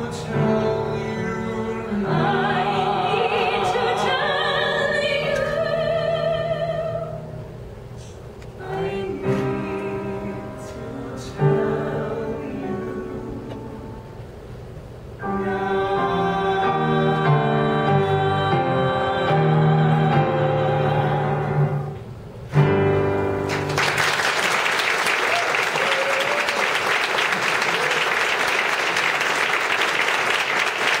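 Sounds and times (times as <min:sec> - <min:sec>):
male and female voices singing: 0:00.0 - 0:07.1, 0:08.6 - 0:13.7, 0:15.2 - 0:21.9
audience applauding: 0:23.5 - 0:31.0.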